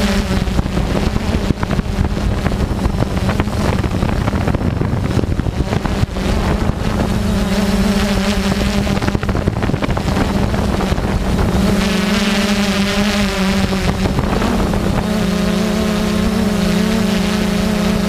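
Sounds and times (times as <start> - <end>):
drone propellers humming: 0.0 - 18.0
wind rumble on microphone: 0.0 - 18.0.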